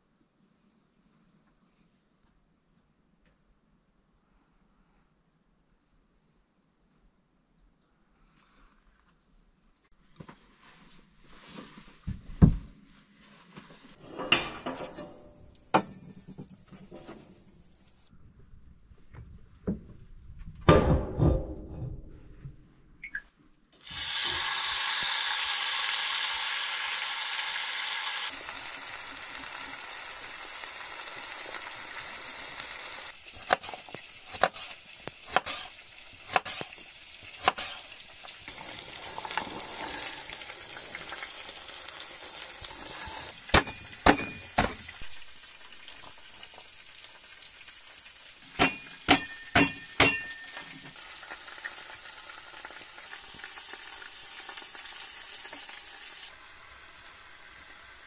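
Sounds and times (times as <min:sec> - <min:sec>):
food sizzling in pot: 0:23.8 - 0:58.0
knife cutting carrots on board: 0:34.4 - 0:35.7
hatchet chopping on cutting board: 0:35.3 - 0:35.7, 0:36.3 - 0:36.6
pot clunking on stove: 0:48.6 - 0:50.8.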